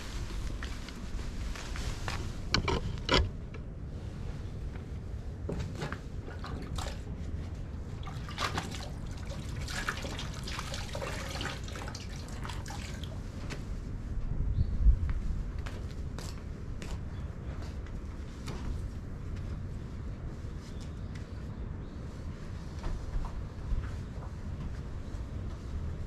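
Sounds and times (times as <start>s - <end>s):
low steady rumble: 0.0s - 26.0s
water splashing in metal bucket: 8.0s - 13.1s.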